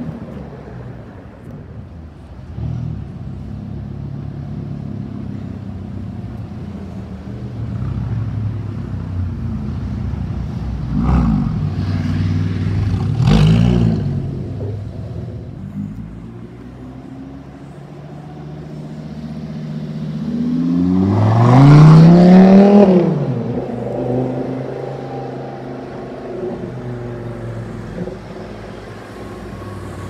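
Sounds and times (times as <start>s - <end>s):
car engine passing: 2.4s - 30.0s
car engine revving: 18.4s - 30.0s.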